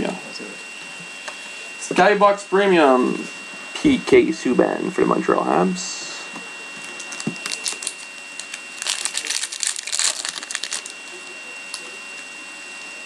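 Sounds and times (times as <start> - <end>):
foil wrapper crinkling: 6.8 - 11.9.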